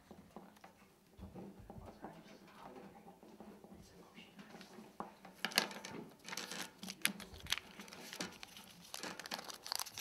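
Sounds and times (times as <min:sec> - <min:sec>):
paper pages rustling and crinkling: 0:06.3 - 0:10.0.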